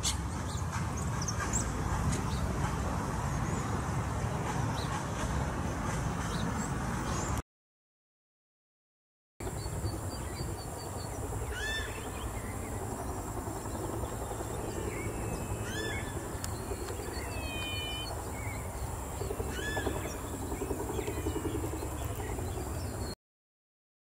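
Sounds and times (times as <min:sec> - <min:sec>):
bird calling sharply: 0:17.2 - 0:18.1.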